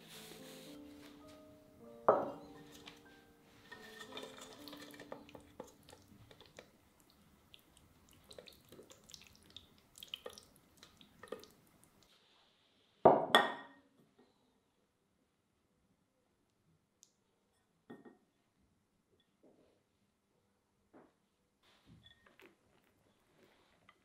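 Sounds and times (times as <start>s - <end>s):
utensil scraping a metal pot: 2.6s - 6.4s
soft wet plops: 5.3s - 12.1s.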